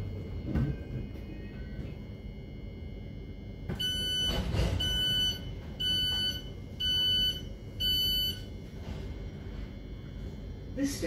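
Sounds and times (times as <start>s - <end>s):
train door warning beeps: 3.7s - 8.5s.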